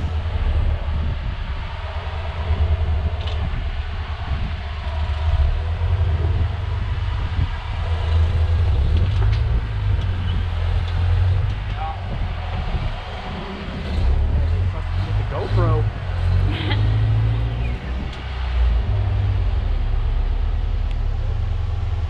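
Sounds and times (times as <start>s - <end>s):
engine rumbling at low revs: 0.0s - 22.0s.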